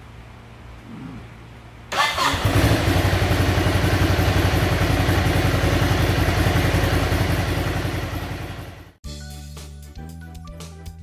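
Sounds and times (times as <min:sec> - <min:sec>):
motorcycle engine idling: 0:01.9 - 0:09.0.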